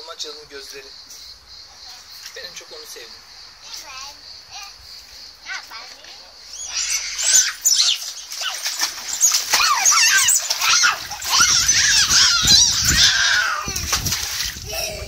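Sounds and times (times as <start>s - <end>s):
wet vinyl toys squeaking: 6.5s - 13.8s
water splashing in paddling pool: 6.6s - 15.0s.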